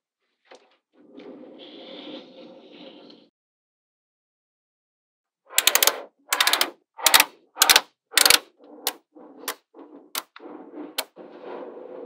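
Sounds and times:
magnetic balls clicking: 0:05.5 - 0:10.4.

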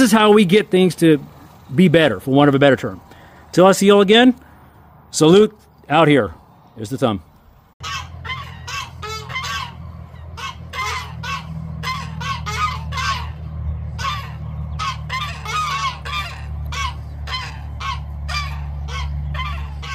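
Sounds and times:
poultry honking calls: 0:07.8 - 0:19.9
steady low hum: 0:07.8 - 0:19.9.

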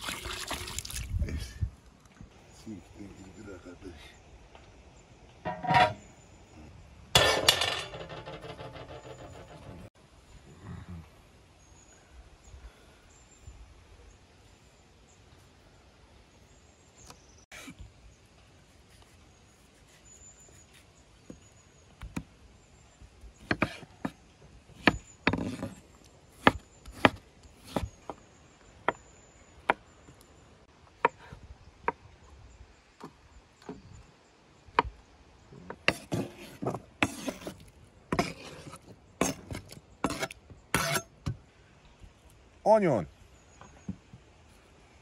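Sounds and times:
knife chopping on wooden board: 0:23.4 - 0:24.2, 0:26.4 - 0:27.9.

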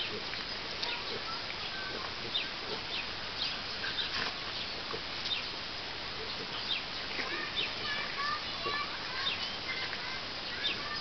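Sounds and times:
steady hiss: 0:00.0 - 0:11.0
dogs grunting: 0:06.2 - 0:09.8.

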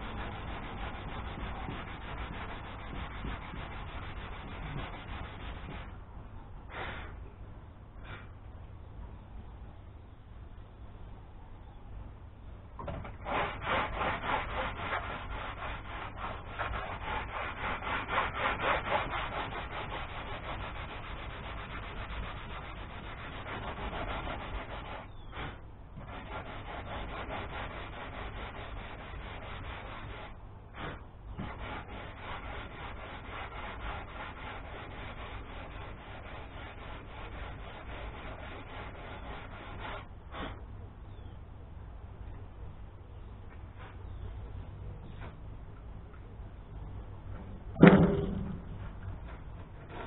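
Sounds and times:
sandpaper scraping a boat hull: 0:00.0 - 0:06.0, 0:06.7 - 0:07.2, 0:12.8 - 0:41.2, 0:48.0 - 0:50.0.

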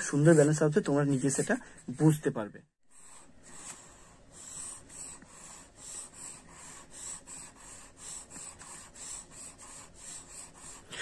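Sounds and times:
pencil scratching on paper: 0:00.0 - 0:01.6, 0:02.9 - 0:11.0.

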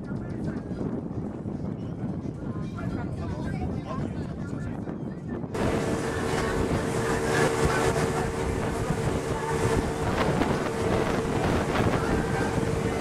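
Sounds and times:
vehicle running hum: 0:05.6 - 0:13.0.

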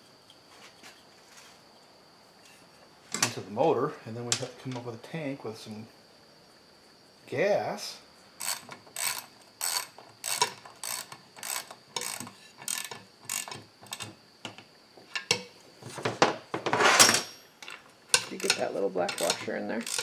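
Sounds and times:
ratchet wrench clicking: 0:08.4 - 0:14.1, 0:17.6 - 0:20.0.

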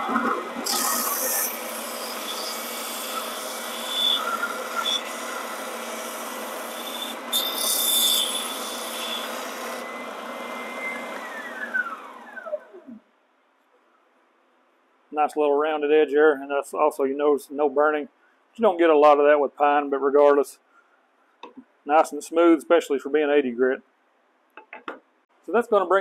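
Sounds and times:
belt sander motor whine: 0:00.0 - 0:13.0.

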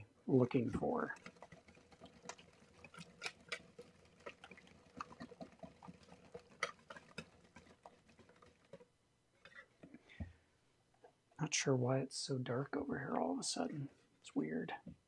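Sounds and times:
whisk clicking against bowl: 0:01.1 - 0:08.8.

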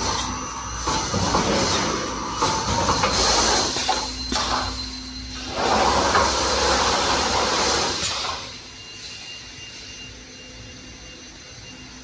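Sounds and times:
welding machine hissing rush: 0:00.0 - 0:08.8
steady machine noise: 0:00.0 - 0:12.0.

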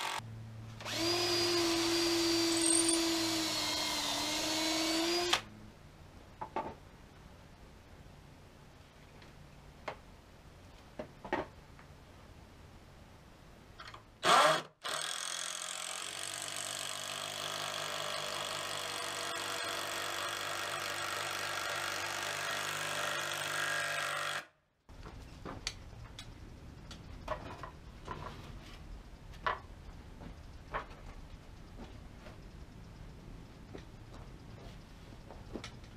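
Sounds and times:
cordless drill running: 0:00.0 - 0:00.2, 0:00.8 - 0:05.4.

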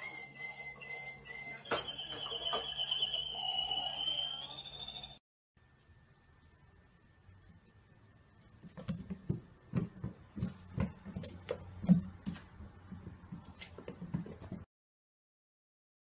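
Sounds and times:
low steady hum: 0:05.6 - 0:13.6
paws and ball tapping wooden floor: 0:08.6 - 0:14.6.

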